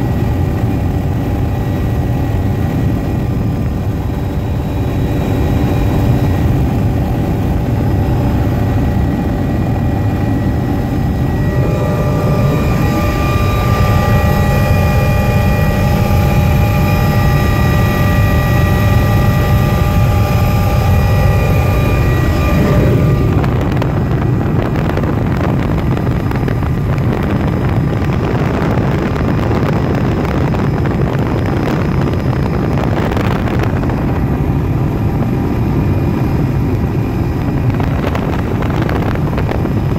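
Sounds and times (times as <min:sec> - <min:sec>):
helicopter engine and rotor rumble: 0:00.0 - 0:39.9
steady whining tones: 0:00.0 - 0:39.9
rushing noise: 0:05.1 - 0:26.0.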